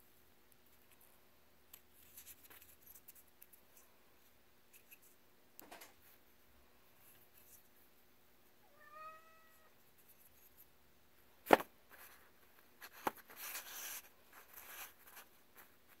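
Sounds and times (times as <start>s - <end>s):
cat meowing: 8.6s - 9.7s
paper rustling: 11.5s - 16.0s.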